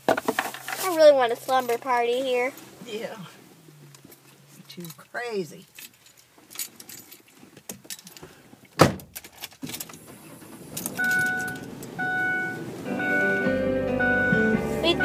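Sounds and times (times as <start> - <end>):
keys jangling: 5.7 - 7.3
car door shutting: 8.8 - 15.0
car starting up: 10.0 - 15.0
short steady tones: 11.0 - 15.0.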